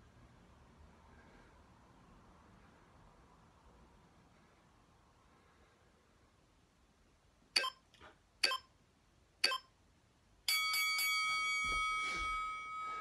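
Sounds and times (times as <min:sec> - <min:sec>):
long steady beep: 0:07.6 - 0:07.8
short timer beeps: 0:07.6 - 0:07.8, 0:08.4 - 0:08.7, 0:09.4 - 0:09.7.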